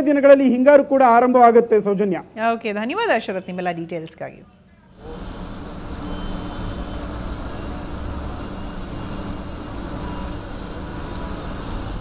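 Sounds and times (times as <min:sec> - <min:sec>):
rain and water hiss: 0:05.0 - 0:12.0
passing vehicle engine rumble: 0:05.1 - 0:12.0.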